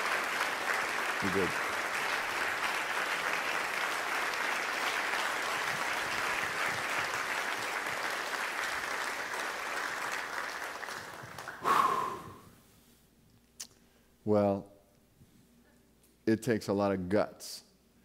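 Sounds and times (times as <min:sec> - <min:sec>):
congregation applauding: 0:00.0 - 0:12.4.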